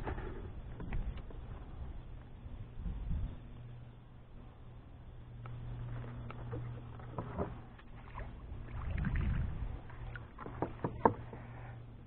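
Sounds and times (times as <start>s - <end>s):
water sloshing: 5.5s - 12.0s
knocks and clicks on kayak: 10.4s - 11.5s.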